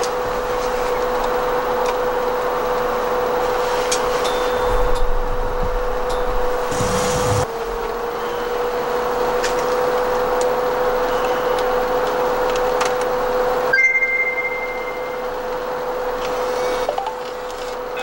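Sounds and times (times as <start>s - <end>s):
cooling fans whirring: 0.0s - 18.0s
faint high whistle: 13.8s - 15.5s.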